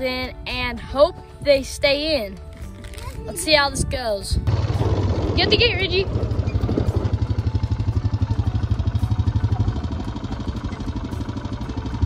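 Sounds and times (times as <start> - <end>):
atv engine idling: 4.5 - 12.0.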